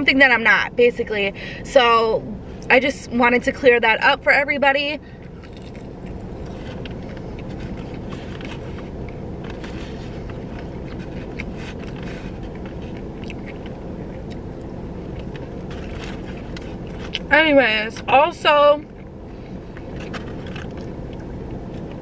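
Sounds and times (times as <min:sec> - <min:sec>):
car cabin hum: 0:00.0 - 0:22.0
chewing crunches: 0:05.2 - 0:17.3, 0:18.9 - 0:22.0.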